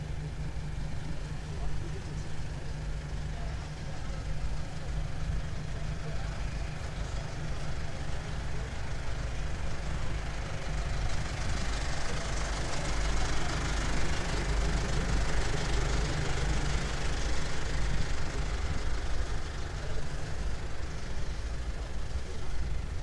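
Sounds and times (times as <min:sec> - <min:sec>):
large engine idling: 0:00.0 - 0:23.0.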